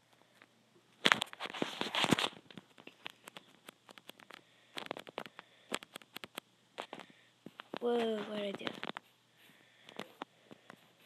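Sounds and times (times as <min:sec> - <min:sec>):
phone handling rustle: 0:01.0 - 0:09.0
small clicks and taps: 0:02.1 - 0:09.1.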